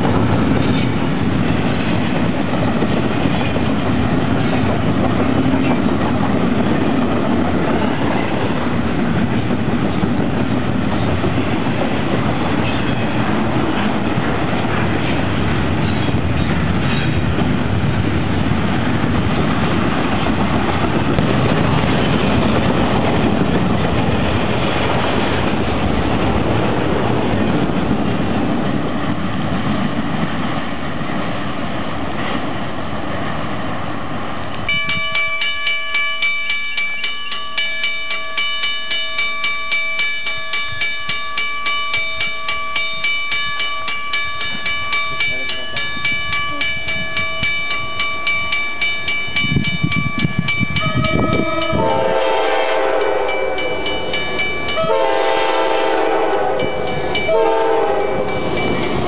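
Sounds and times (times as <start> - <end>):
diesel locomotives rumbling: 0.0 - 59.0
freight train rumbling past: 0.0 - 59.0
bell ringing: 34.7 - 51.9
train air horn blasts: 50.8 - 53.8, 54.8 - 58.4.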